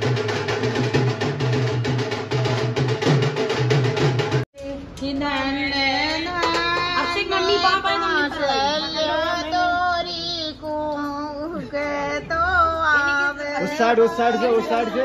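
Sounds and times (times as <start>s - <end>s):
drum-beat music: 0.0s - 4.4s
high singing voice: 4.6s - 15.0s.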